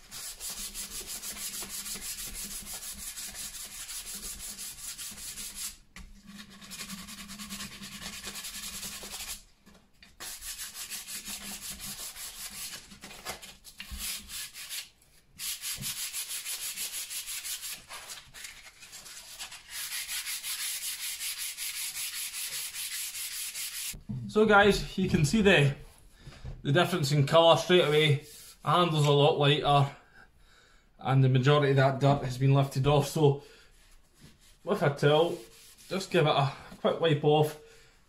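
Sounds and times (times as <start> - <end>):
sandpaper scratching on wood: 0.0 - 9.4, 10.2 - 12.8, 13.9 - 24.0, 27.8 - 28.6, 34.5 - 36.2.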